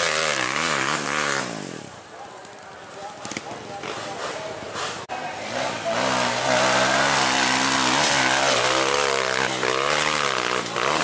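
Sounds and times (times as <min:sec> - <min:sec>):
dirt bike engine revving: 0:00.0 - 0:02.0, 0:03.8 - 0:11.0.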